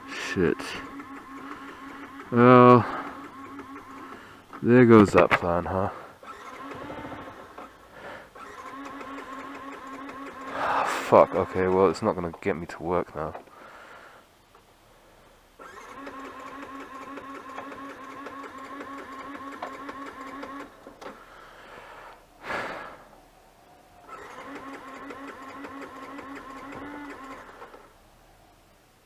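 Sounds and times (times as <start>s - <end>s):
motorcycle starter cranking: 0.0s - 5.5s, 6.2s - 7.7s, 8.4s - 12.0s, 15.6s - 21.2s, 24.1s - 27.9s.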